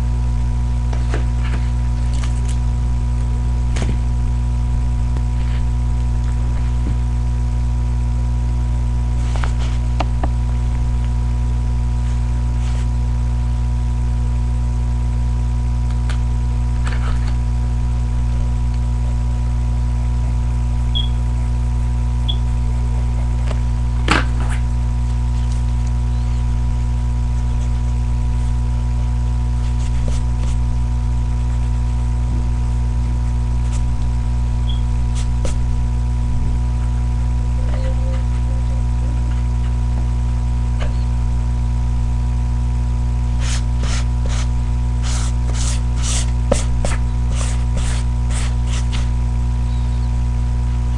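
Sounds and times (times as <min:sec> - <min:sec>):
electrical hum: 0:00.0 - 0:50.9
short high beeps: 0:21.0 - 0:21.2.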